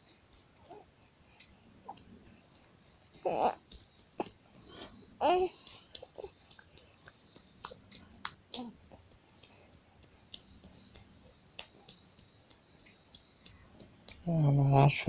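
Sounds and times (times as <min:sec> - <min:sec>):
baby vocal sound: 0:03.2 - 0:03.6, 0:05.2 - 0:06.4.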